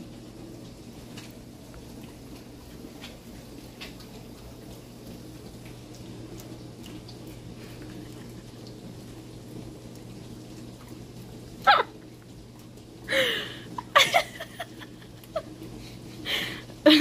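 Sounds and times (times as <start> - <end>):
low room hum: 0.0 - 17.0
dogs chewing: 1.1 - 11.4.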